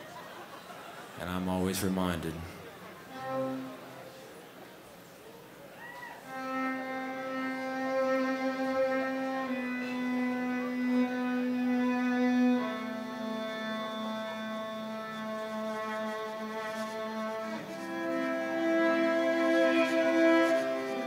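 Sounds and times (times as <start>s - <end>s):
solo violin bowed: 3.1s - 4.4s, 6.2s - 21.0s.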